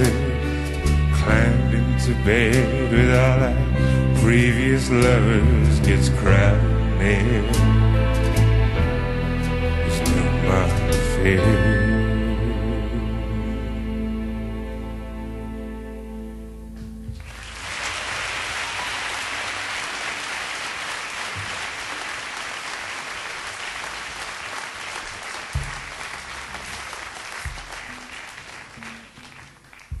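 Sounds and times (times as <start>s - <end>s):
low thumps: 16.7s - 17.4s, 25.4s - 28.1s
audience applauding: 17.2s - 30.0s.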